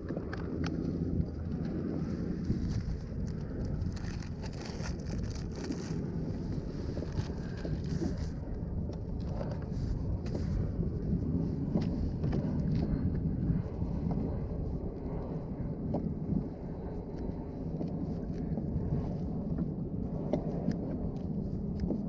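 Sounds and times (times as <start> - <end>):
wind rumbling on microphone: 0.0 - 22.0
plastic bag crinkling: 2.8 - 6.0.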